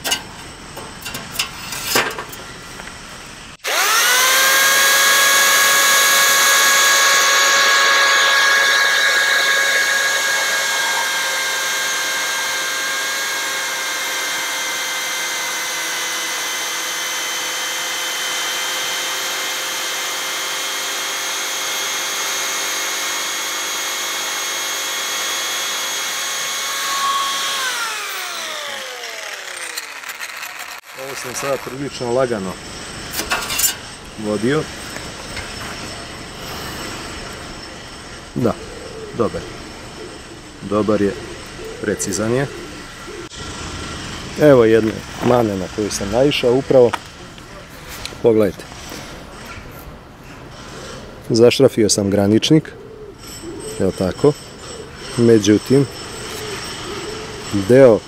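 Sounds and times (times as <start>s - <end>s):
jigsaw sawing wood: 3.6s - 34.6s.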